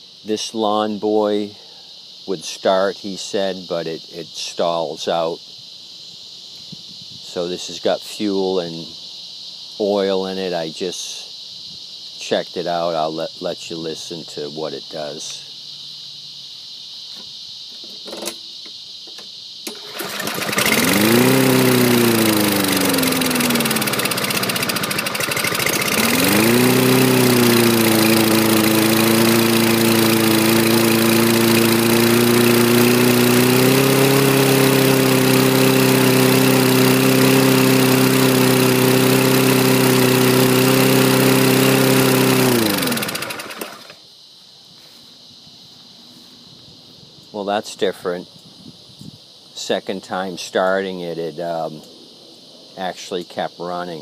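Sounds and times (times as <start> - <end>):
lawn mower engine running: 19.7 - 44.0.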